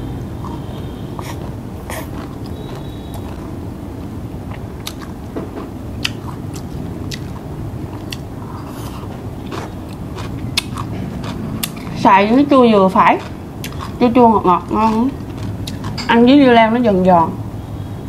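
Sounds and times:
chewing crunchy food: 0:00.2 - 0:03.6, 0:04.4 - 0:12.0, 0:12.9 - 0:16.1.

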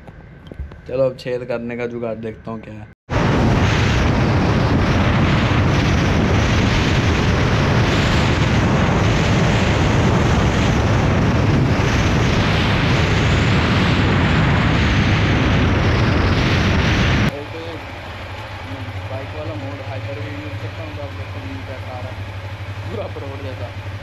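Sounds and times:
wind buffeting microphone: 0:00.0 - 0:01.1, 0:03.1 - 0:24.0.

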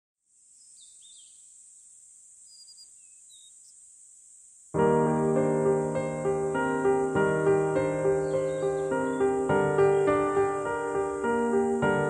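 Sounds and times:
high insect drone: 0:00.3 - 0:12.0
bird chirps: 0:00.5 - 0:01.6, 0:02.4 - 0:03.8, 0:07.6 - 0:11.7
piano background music: 0:04.8 - 0:12.0.

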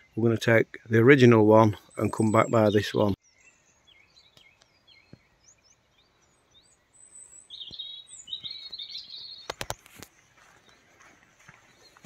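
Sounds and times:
birds singing and chirping: 0:00.0 - 0:12.0
sharp clicks: 0:09.4 - 0:10.1.

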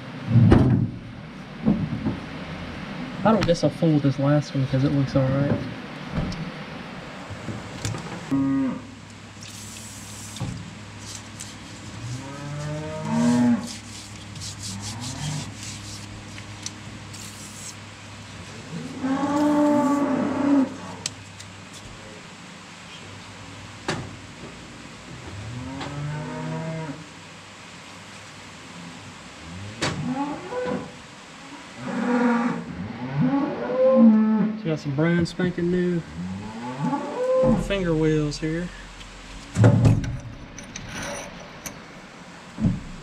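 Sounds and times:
low steady hum: 0:00.0 - 0:43.0
cattle mooing: 0:08.3 - 0:08.9, 0:12.0 - 0:13.8, 0:14.7 - 0:15.5, 0:18.6 - 0:21.1, 0:25.4 - 0:27.0, 0:36.1 - 0:38.0.

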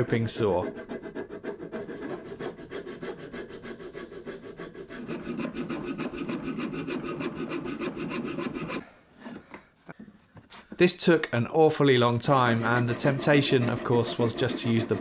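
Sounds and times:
saw cutting wood: 0:00.0 - 0:08.8, 0:12.1 - 0:15.0.

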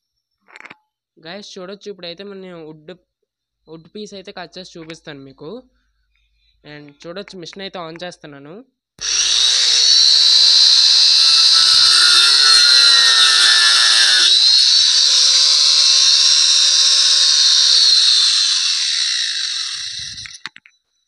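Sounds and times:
angle grinder cutting wood: 0:09.0 - 0:20.5.

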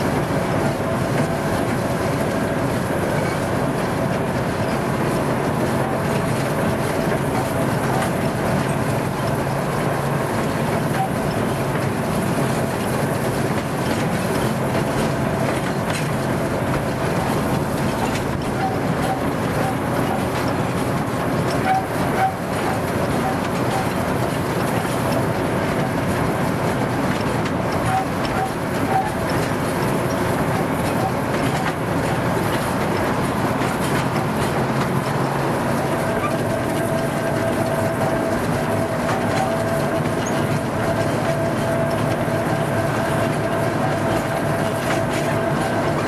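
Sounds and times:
train wheels clicking over rail joints: 0:00.0 - 0:46.0.

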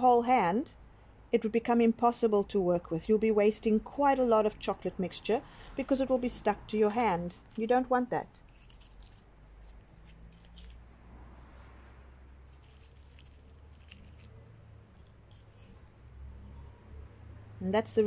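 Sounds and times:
birds chirping faintly: 0:04.3 - 0:09.3, 0:13.8 - 0:18.0.

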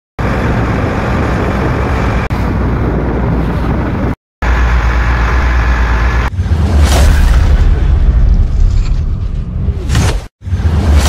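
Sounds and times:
wind buffeting microphone: 0:00.2 - 0:04.2.

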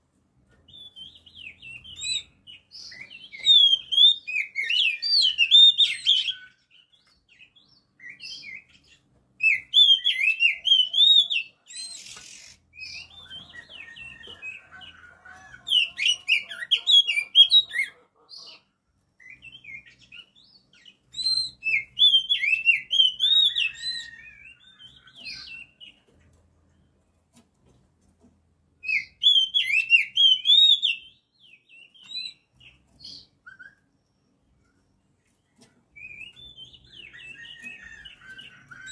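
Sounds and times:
soft bird chirps and twitters: 0:00.5 - 0:38.9
magpie-robin singing whistles: 0:00.7 - 0:06.9, 0:08.0 - 0:13.8, 0:19.2 - 0:25.8, 0:28.8 - 0:33.9, 0:36.0 - 0:38.9.

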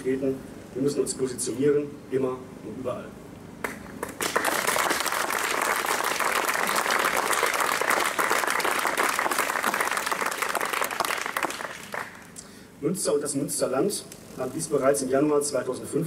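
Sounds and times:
crowd applauding: 0:04.0 - 0:12.4.

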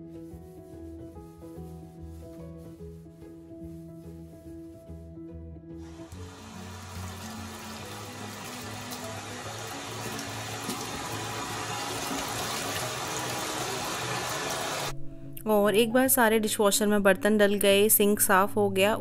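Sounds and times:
soft background music: 0:00.0 - 0:19.0
hands splashing and rinsing: 0:05.8 - 0:14.9
tap running into a steel sink: 0:06.2 - 0:14.6.

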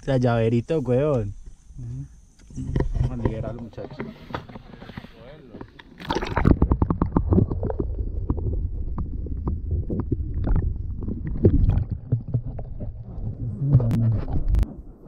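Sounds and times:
water gurgling and sloshing: 0:02.6 - 0:15.0
low rumble: 0:07.2 - 0:15.0.

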